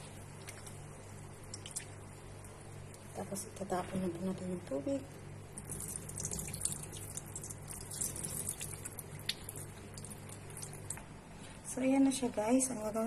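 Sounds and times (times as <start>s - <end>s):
water pouring into sink: 5.6s - 11.0s.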